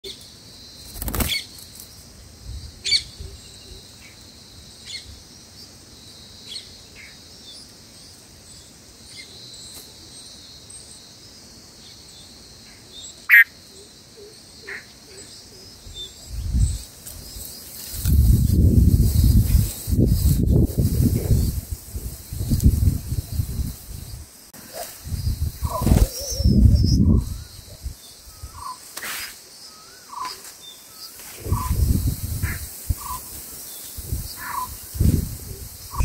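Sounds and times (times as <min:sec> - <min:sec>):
bulbuls chirping: 0:12.7 - 0:36.0
high-pitched hiss: 0:15.2 - 0:36.0.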